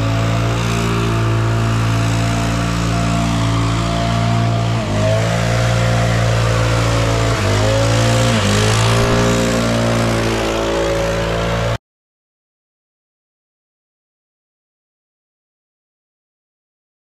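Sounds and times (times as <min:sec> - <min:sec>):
leaf blower running: 0:00.0 - 0:11.8.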